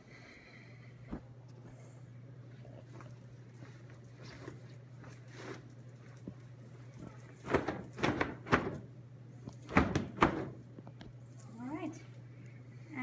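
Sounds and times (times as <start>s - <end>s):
steady low hum: 0.0s - 13.0s
fabric flapping and snapping: 7.4s - 8.8s.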